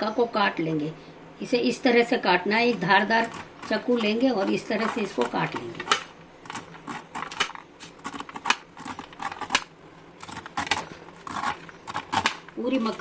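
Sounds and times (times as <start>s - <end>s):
knife slicing corn kernels: 2.8s - 13.0s.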